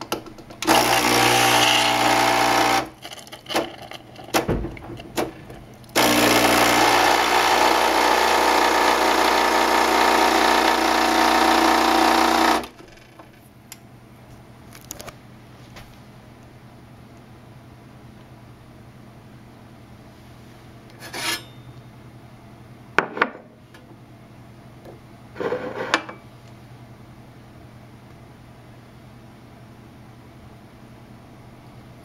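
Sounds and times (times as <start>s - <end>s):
espresso machine pump buzzing: 0.6s - 3.7s, 6.0s - 12.8s.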